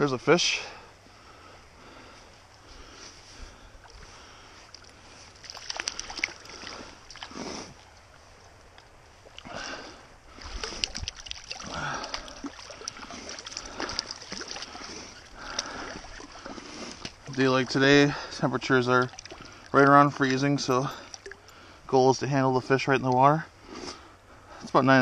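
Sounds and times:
fish splashing in water: 0:03.8 - 0:08.2, 0:08.8 - 0:17.4, 0:19.0 - 0:19.9, 0:21.0 - 0:21.5.

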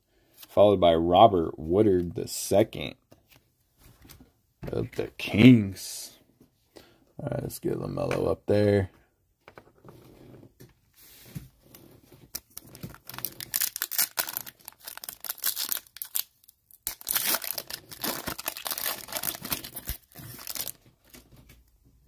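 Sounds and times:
foil wrapper tearing and crackling: 0:12.3 - 0:21.2.

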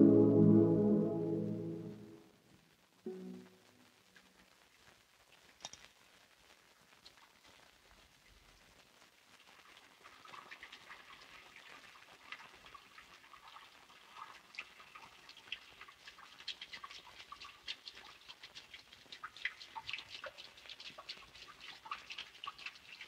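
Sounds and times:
water splashing in washbasin: 0:09.6 - 0:23.0.

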